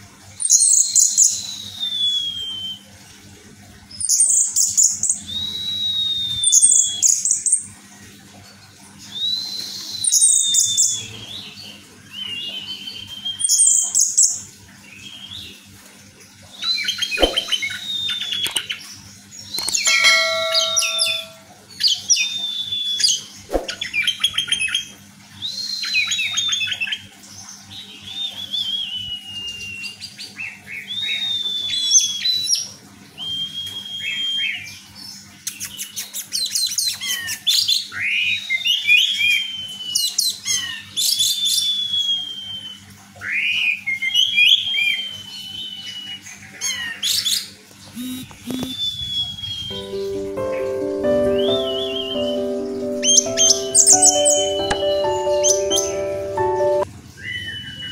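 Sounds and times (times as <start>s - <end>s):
thrush singing: 49.7s - 56.9s.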